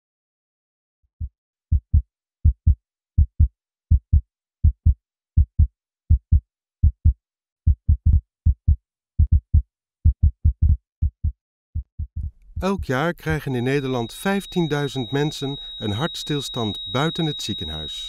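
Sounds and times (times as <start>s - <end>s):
heartbeat thumps: 1.2s - 13.5s.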